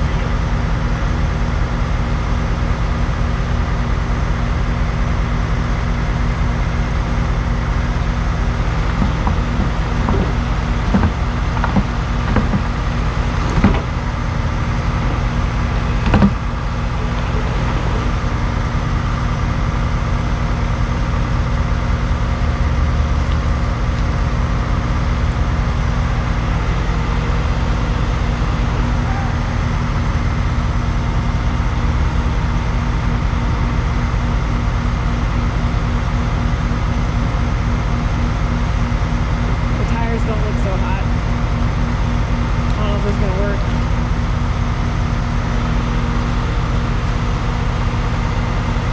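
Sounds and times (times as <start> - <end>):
diesel truck engine running: 0.0 - 48.9
knocks and rattles: 8.7 - 17.7.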